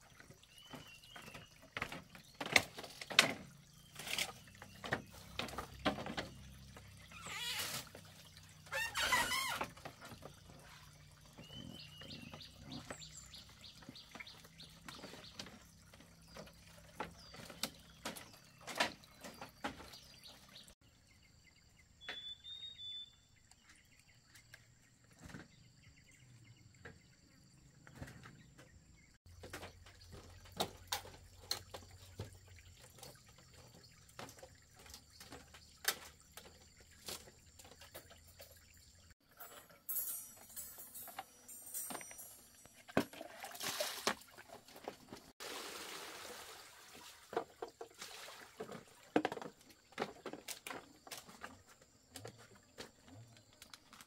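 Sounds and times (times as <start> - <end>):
water splashing and pouring: 0.0 - 20.8, 29.2 - 40.3, 41.8 - 51.6
bird chirping: 6.3 - 30.3.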